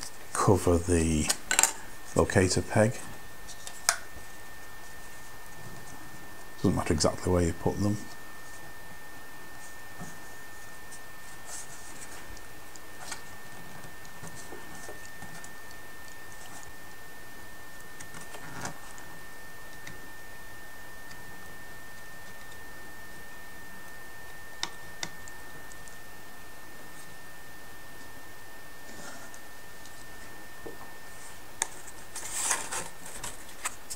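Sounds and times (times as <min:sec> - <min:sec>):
high-pitched whine and hiss: 0:00.0 - 0:12.2.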